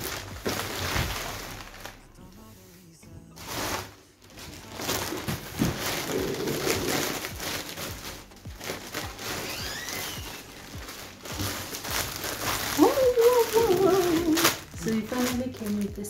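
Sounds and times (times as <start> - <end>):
plastic bags rustling: 0.0 - 16.0.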